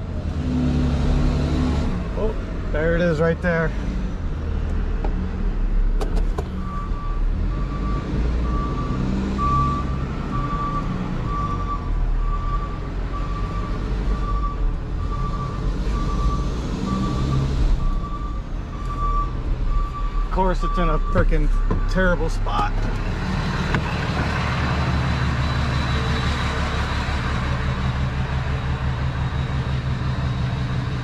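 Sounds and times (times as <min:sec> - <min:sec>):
truck engine running: 0:06.2 - 0:31.0
backup alarm beeping: 0:06.6 - 0:22.1.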